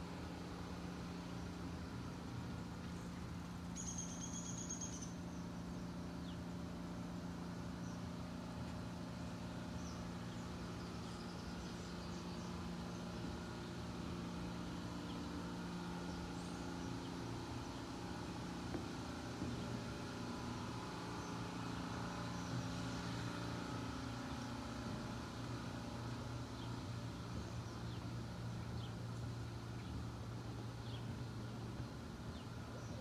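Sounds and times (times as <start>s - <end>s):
engine hum: 0.0s - 33.0s
bird chirps: 3.8s - 5.4s.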